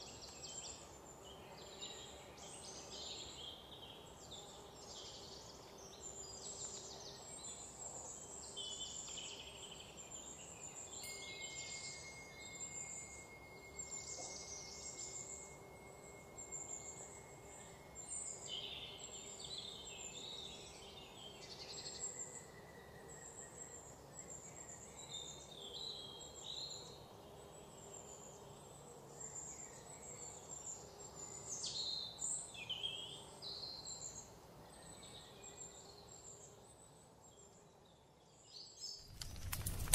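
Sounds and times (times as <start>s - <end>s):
small birds chirping: 0.0s - 22.5s
insects: 0.0s - 39.9s
faint steady high tone: 10.6s - 20.9s.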